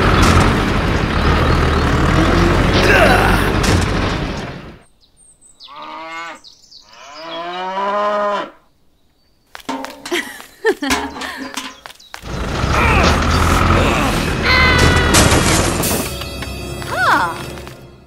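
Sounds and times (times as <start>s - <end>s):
engine rumbling: 0.0s - 4.9s, 9.6s - 18.0s
cow mooing: 5.7s - 8.6s, 12.7s - 15.2s.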